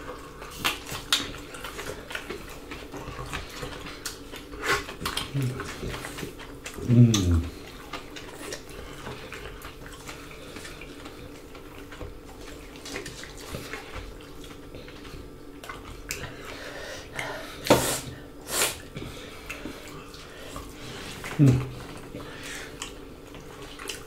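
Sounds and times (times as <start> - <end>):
faint steady hum: 0.0 - 24.0
wet chewing: 0.0 - 24.0
short hissing sounds: 17.7 - 18.8.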